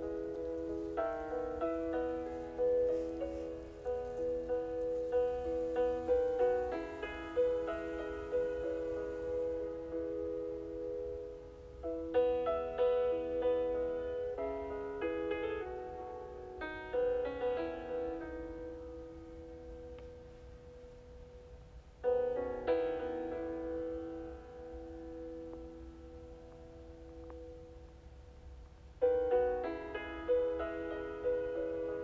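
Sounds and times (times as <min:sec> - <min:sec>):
slow piano chords: 0:00.0 - 0:32.0.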